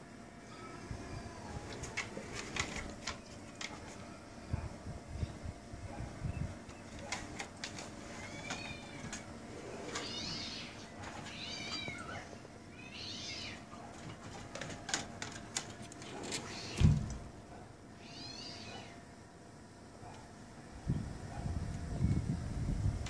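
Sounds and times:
cat meowing: 0:08.2 - 0:09.2, 0:09.8 - 0:13.7, 0:18.0 - 0:19.0.

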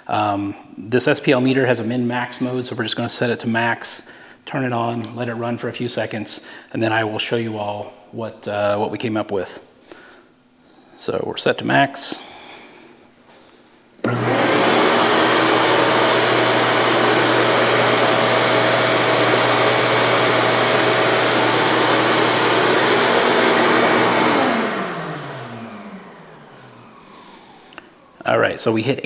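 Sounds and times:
vacuum switch: 0:14.0 - 0:27.1
shop vacuum whine and hum: 0:14.0 - 0:28.7.

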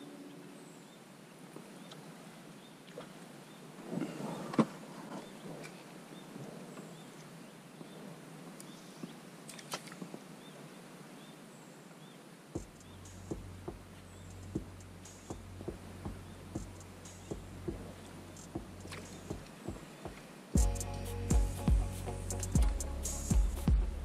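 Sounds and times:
low hum: 0:20.6 - 0:24.0.

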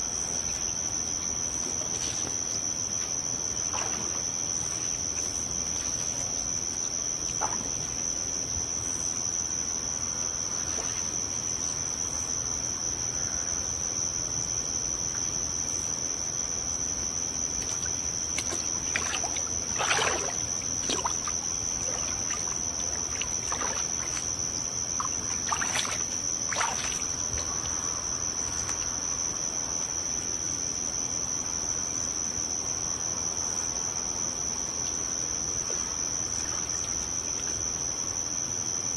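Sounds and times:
high-pitched insect chorus: 0:00.0 - 0:38.9
water sloshing in pool: 0:01.3 - 0:08.8, 0:16.9 - 0:29.4, 0:34.9 - 0:38.6.

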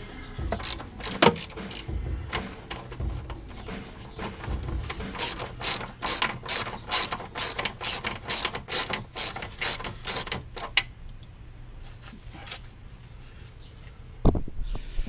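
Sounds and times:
socket ratchet clicking: 0:00.5 - 0:03.0, 0:04.3 - 0:10.8.

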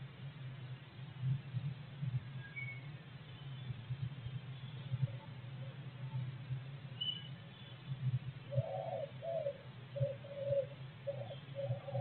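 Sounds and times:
steady low hum: 0:00.0 - 0:12.0
bird calling low notes: 0:08.5 - 0:12.0.

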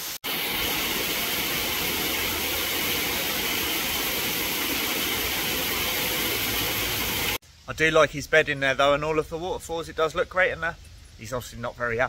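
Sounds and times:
waterfall rushing: 0:00.0 - 0:07.4.

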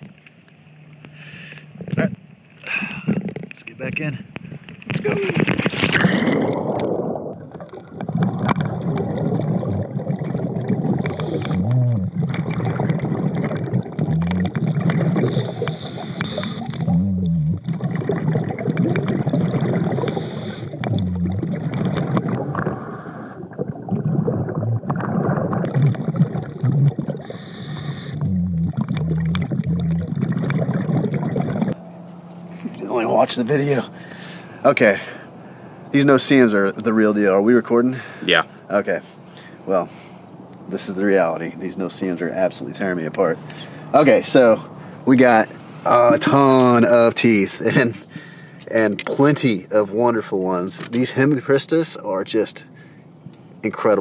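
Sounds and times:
gurgling exhaled bubbles: 0:01.8 - 0:03.6, 0:04.4 - 0:31.8
regulator breathing hiss: 0:32.5 - 0:35.4.

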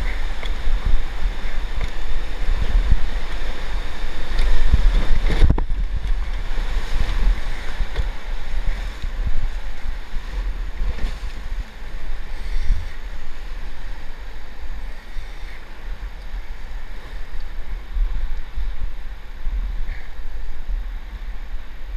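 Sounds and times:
whitewater rushing and splashing: 0:00.0 - 0:21.9
wind buffeting microphone: 0:00.0 - 0:21.9.

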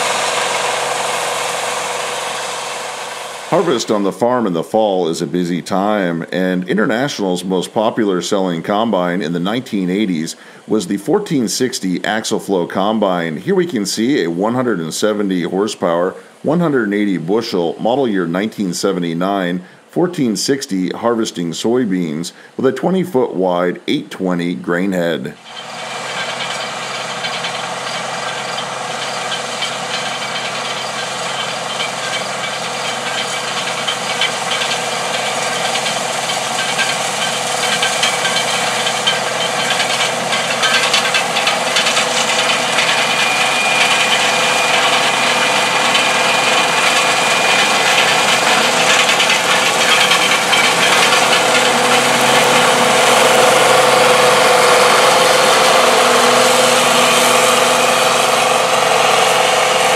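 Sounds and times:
steady high whine: 0:00.0 - 0:11.8, 0:25.4 - 0:59.9
combine harvester running: 0:00.0 - 0:18.9, 0:25.4 - 0:59.9.

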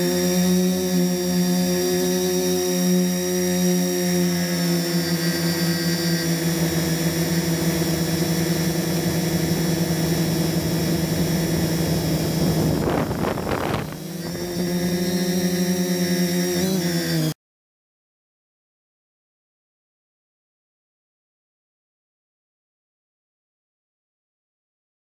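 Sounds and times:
quadcopter motors whining: 0:00.0 - 0:17.4.

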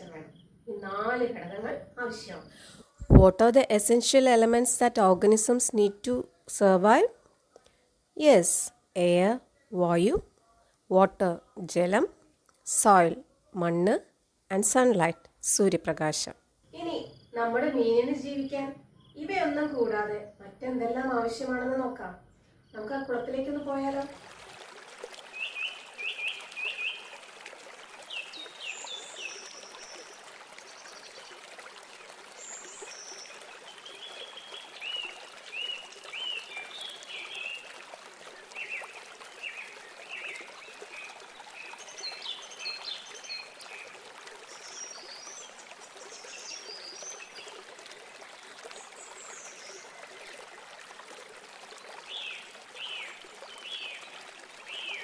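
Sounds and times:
trickle of running water: 0:23.2 - 0:55.0
birds chirping: 0:25.3 - 0:31.5.

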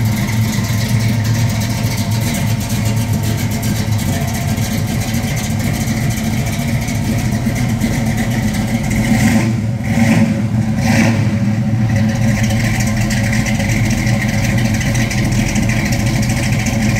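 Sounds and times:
car engine idling: 0:00.0 - 0:16.9
engine revving: 0:08.2 - 0:12.5.

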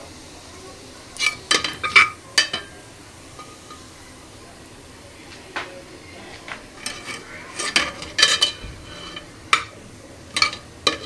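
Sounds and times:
spatula scraping steel pot: 0:01.2 - 0:02.7, 0:06.8 - 0:09.7, 0:10.3 - 0:11.0.

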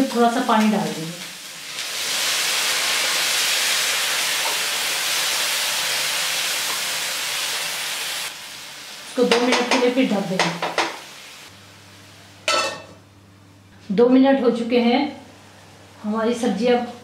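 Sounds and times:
water hissing in a hot frying pan: 0:00.0 - 0:11.5.

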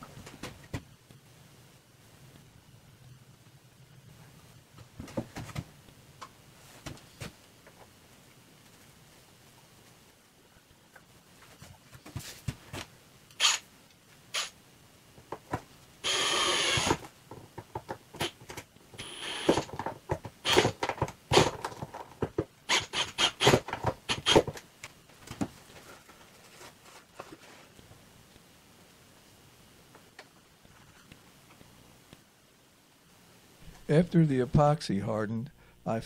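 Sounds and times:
cordless drill driving screws: 0:13.4 - 0:13.6, 0:14.3 - 0:14.6, 0:16.0 - 0:17.1, 0:19.0 - 0:19.7, 0:20.4 - 0:21.5, 0:22.7 - 0:24.5.

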